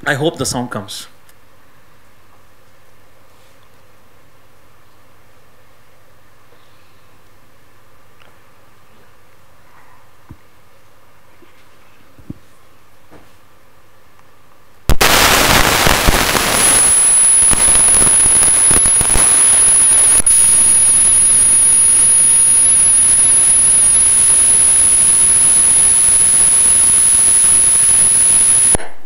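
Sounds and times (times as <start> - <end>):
loud static hiss: 14.8 - 29.0
thin high-pitched whine: 15.0 - 28.8.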